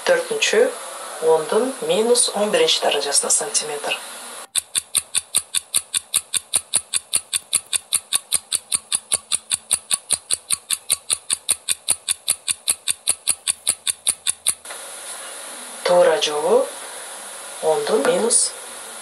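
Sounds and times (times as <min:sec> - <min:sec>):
fast countdown timer ticking: 0:04.5 - 0:14.6.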